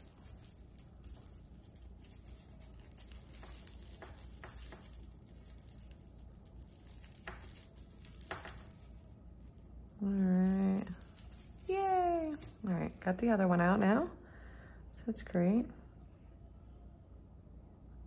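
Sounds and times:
metal chains clinking: 0.0 - 12.8.

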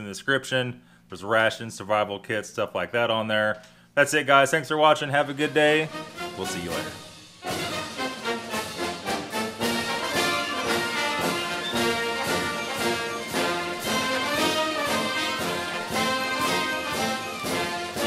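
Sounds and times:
orchestral music with brass: 5.4 - 18.0.

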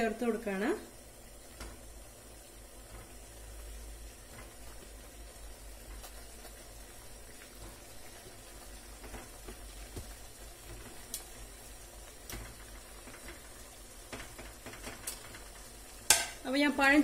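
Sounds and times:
water boiling with faint hiss: 0.0 - 17.0.

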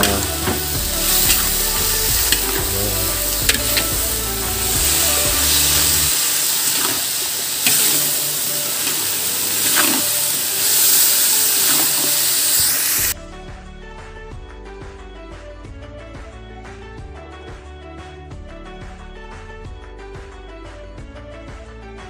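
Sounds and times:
metal spatula scraping pan: 0.0 - 12.2
food sizzling in a wok: 0.0 - 13.2
background music: 0.0 - 22.0.

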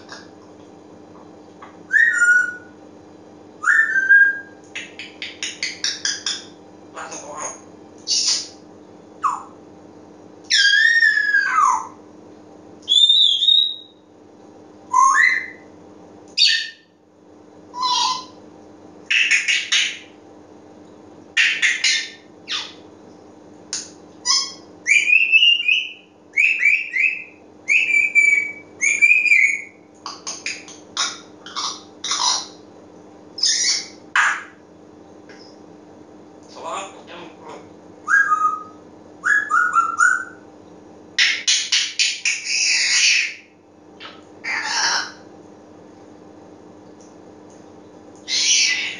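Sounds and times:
parrot whistles chirps and squawks: 1.9 - 2.7, 3.6 - 8.6, 9.2 - 9.6, 10.5 - 12.0, 12.9 - 14.0, 14.9 - 15.7, 16.4 - 16.9, 17.7 - 18.4, 21.4 - 22.8, 24.2 - 29.8, 30.4 - 32.6, 33.4 - 34.6, 38.0 - 40.4, 41.2 - 45.2, 48.2 - 48.9.

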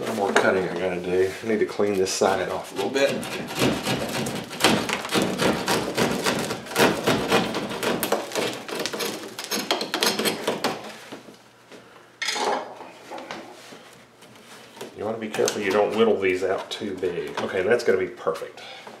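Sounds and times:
drywall saw rasping: 2.3 - 11.0.

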